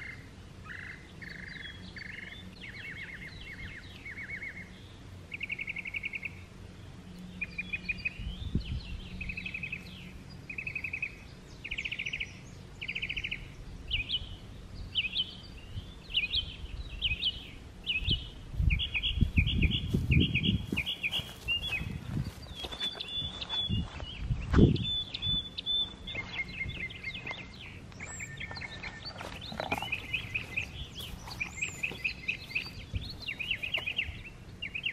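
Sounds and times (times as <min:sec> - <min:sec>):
songbirds singing: 0:00.0 - 0:34.9
rustling in grass and straw: 0:18.4 - 0:24.6, 0:25.5 - 0:34.4
footsteps in grass: 0:18.6 - 0:24.9, 0:25.7 - 0:34.2.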